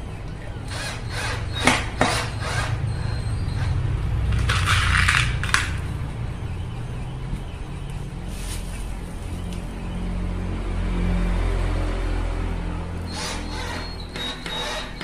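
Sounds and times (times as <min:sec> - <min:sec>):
cordless drill-driver: 0:00.7 - 0:02.8, 0:13.1 - 0:15.0.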